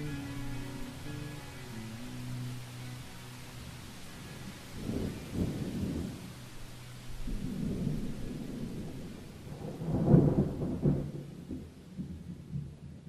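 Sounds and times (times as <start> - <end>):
rain hiss: 0.0 - 13.0
rolling thunder: 7.2 - 13.0.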